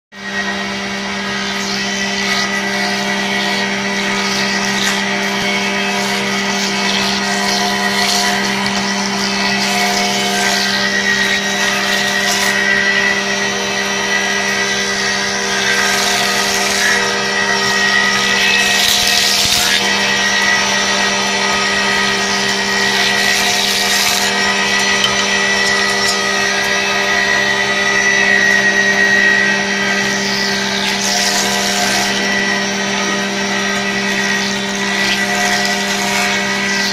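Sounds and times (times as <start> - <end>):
sanding machine motor hum: 0.1 - 36.9.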